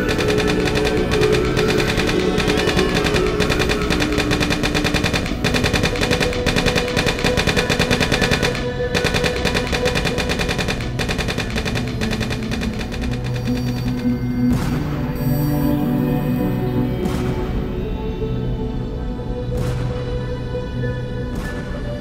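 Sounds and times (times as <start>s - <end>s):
machine-gun fire: 0.0s - 14.8s
music with held tones: 0.0s - 22.0s.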